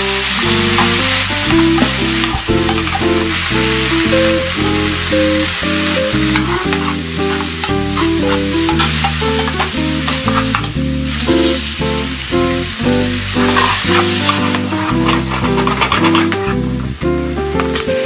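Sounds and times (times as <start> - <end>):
background music: 0.0 - 18.0
vegetables sizzling in oil: 0.0 - 18.0
spoon stirring in pan: 0.4 - 3.8, 6.2 - 10.8, 13.4 - 16.4.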